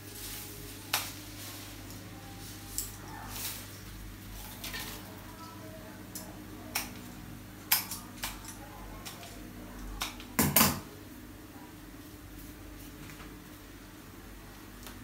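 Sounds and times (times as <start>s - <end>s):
stems being handled: 0.0s - 5.5s.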